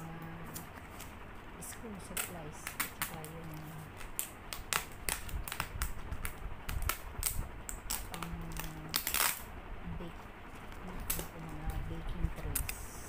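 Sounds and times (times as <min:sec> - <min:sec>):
fingers tapping packing tape: 0:02.2 - 0:09.4.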